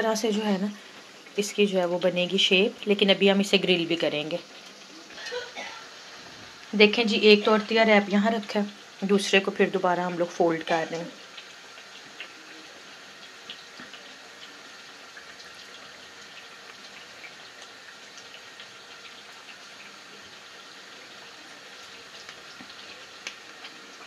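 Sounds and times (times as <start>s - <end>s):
steady background hiss: 0.0s - 24.0s
tortilla wrap rustling and tapping: 22.1s - 23.8s.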